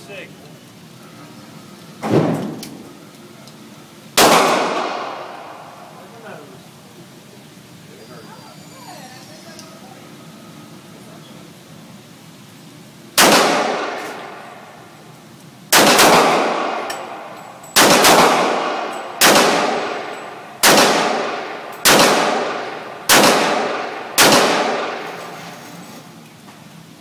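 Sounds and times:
pistol gunshots echoing: 4.2 - 5.8, 13.2 - 14.8, 15.7 - 25.2.

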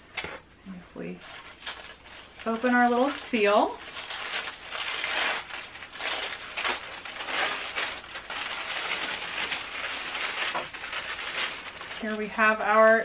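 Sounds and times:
tissue paper rustling: 1.2 - 13.0.

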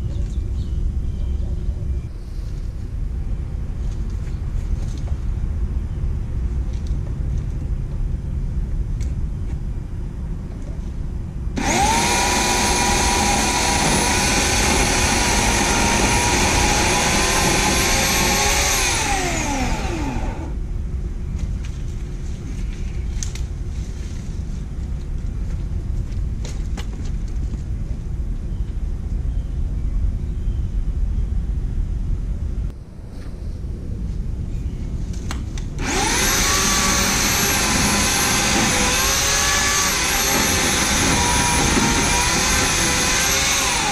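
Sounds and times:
electric chainsaw motor whine: 11.6 - 20.6, 35.8 - 43.9.

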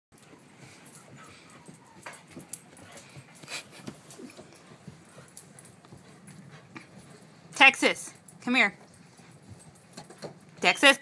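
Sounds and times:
dogs scuffling on carpet: 0.2 - 10.6.

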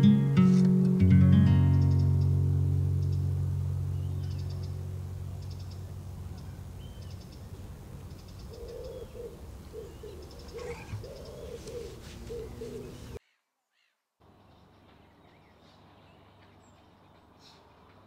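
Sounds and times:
acoustic guitar chord ringing: 0.0 - 6.8
small birds chirping: 1.5 - 18.0
pigeon cooing: 8.3 - 13.2.

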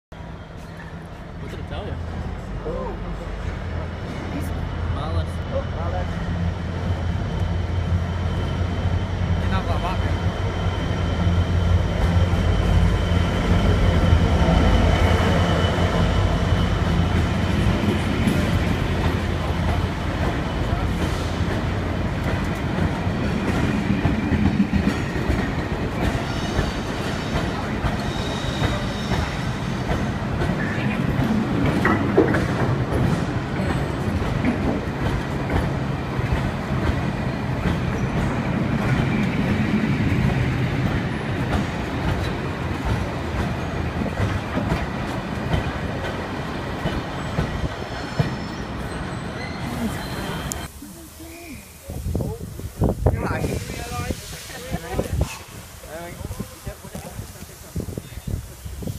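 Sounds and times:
train wheels rumbling on rails: 0.2 - 50.8, 51.8 - 58.9.

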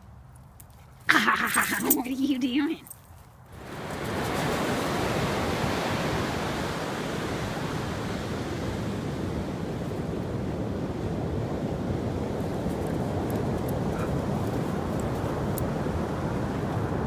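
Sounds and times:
ocean surf breaking: 3.6 - 17.0
wind buffeting microphone: 3.6 - 17.0.

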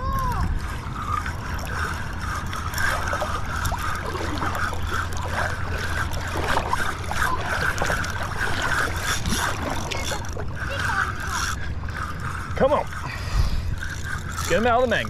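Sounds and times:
fishing reel gears cranking: 0.0 - 15.0
steady low hum: 0.0 - 15.0.

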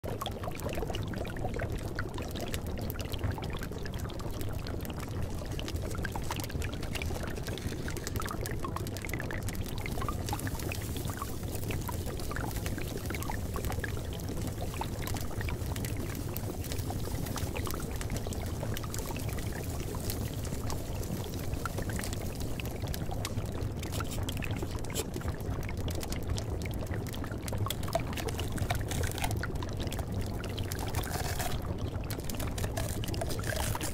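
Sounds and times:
running water rushing: 27.7 - 33.9.

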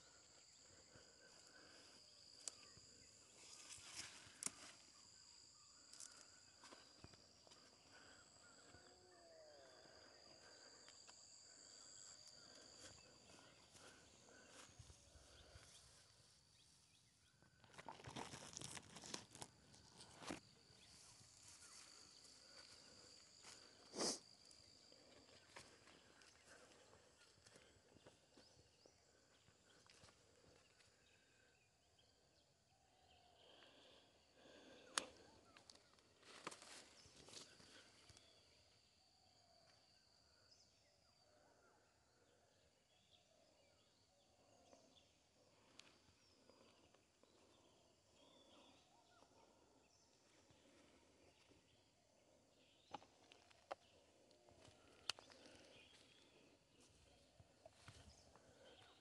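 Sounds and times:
rustling through field plants: 1.1 - 8.2.

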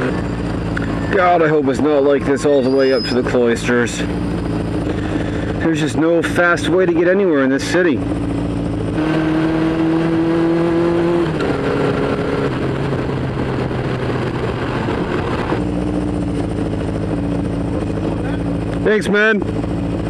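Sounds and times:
motorcycle engine running: 0.0 - 20.0
rushing wind noise: 8.0 - 20.0.

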